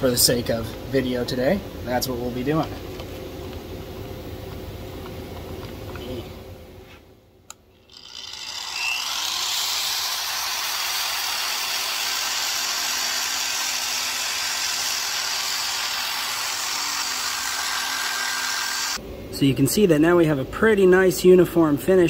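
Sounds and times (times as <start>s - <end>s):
machine motor whining: 7.8s - 19.0s
sanding wheel rubbing on steel: 8.4s - 19.0s.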